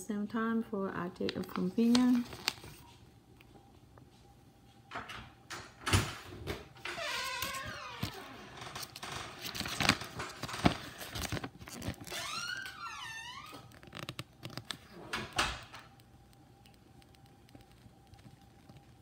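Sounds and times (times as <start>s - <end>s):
paper rustling and crackling: 1.3s - 3.0s, 7.2s - 12.6s, 13.5s - 15.3s, 16.7s - 19.0s.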